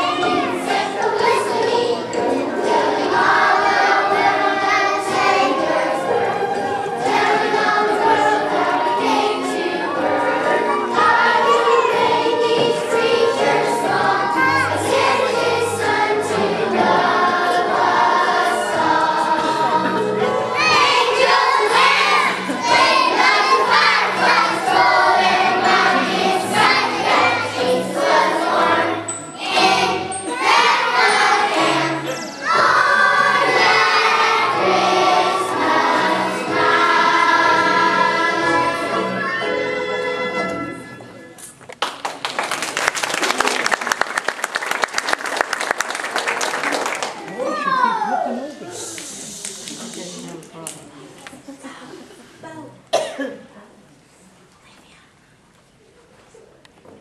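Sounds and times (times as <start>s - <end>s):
children's choir singing: 0.0s - 41.0s
instrumental accompaniment: 0.0s - 41.6s.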